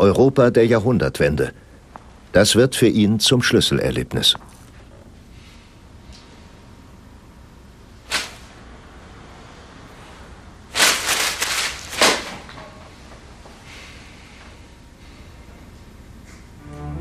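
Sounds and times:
newspaper rustling: 10.7s - 12.5s.

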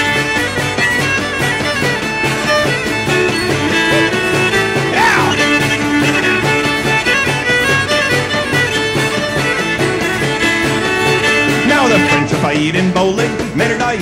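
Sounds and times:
fiddle melody: 0.0s - 14.0s
live folk band playing: 0.0s - 14.0s.

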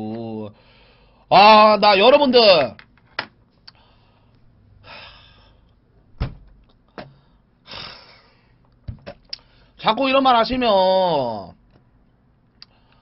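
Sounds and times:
man breathing: 0.5s - 1.3s, 3.6s - 5.9s, 6.8s - 8.7s, 9.3s - 9.8s, 12.6s - 13.0s.

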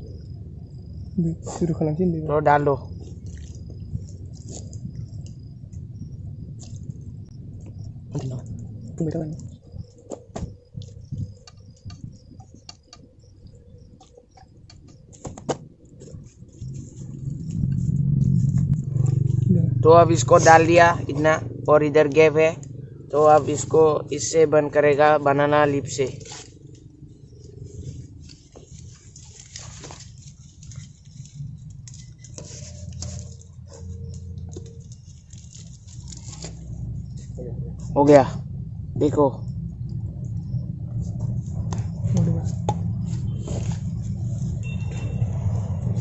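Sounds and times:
steady low rumble: 0.0s - 46.0s
leaf crinkling and rustling: 26.1s - 37.4s.

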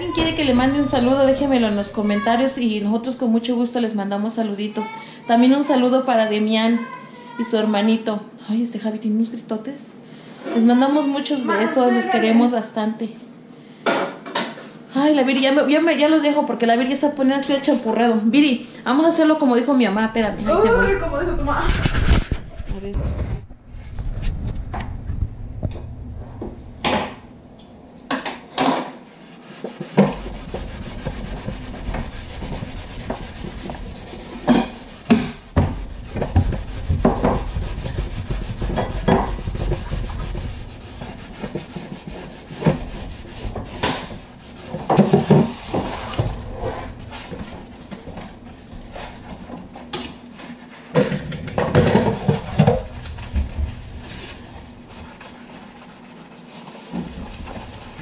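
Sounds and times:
rubbing and scraping on counter: 0.0s - 3.4s, 19.0s - 24.6s, 28.1s - 58.0s.

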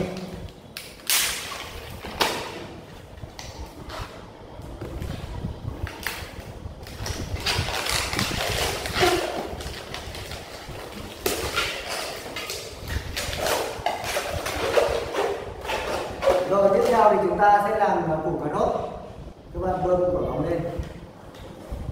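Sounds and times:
balloons squeaking and rubbing: 6.9s - 17.0s.

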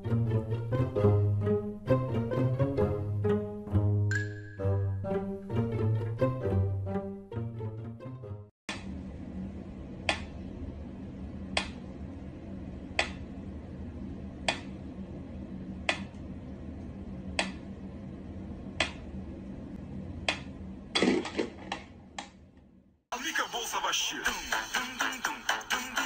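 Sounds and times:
low steady hum: 8.7s - 23.6s.

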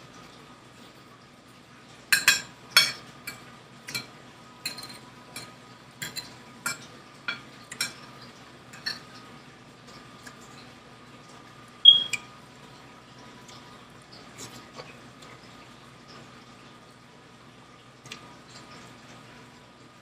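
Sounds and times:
fork clinking on plate: 4.7s - 8.0s.

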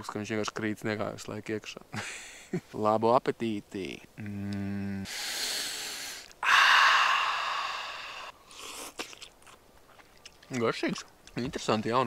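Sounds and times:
man humming: 4.2s - 5.2s, 6.4s - 8.3s.

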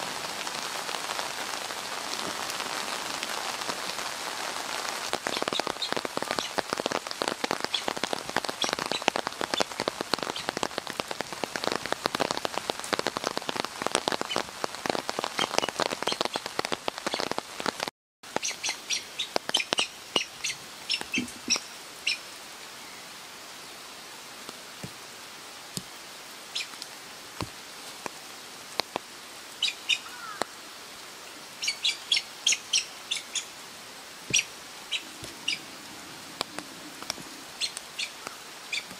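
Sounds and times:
rain pattering: 0.0s - 38.9s.

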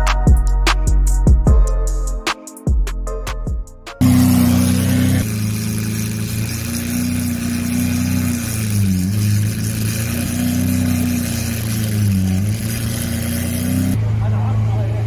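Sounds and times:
car engine at low revs: 4.0s - 15.0s.

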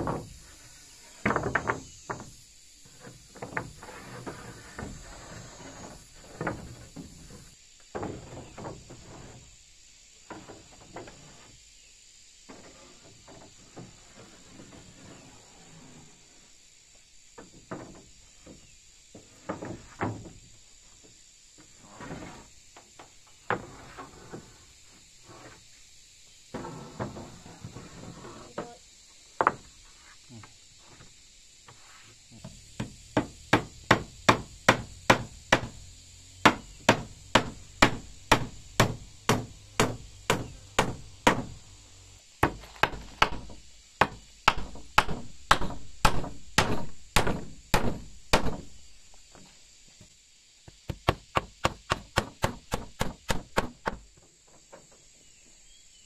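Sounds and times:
hammer nailing wooden floorboards: 32.8s - 35.8s, 36.4s - 41.6s, 42.4s - 48.7s, 50.9s - 54.0s.

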